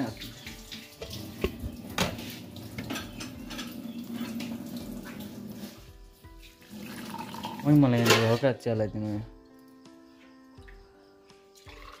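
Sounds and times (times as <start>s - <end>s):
steel pots and dishes clinking: 0.0s - 5.7s, 7.0s - 8.6s
soft watery sound: 0.0s - 8.2s, 11.5s - 12.0s.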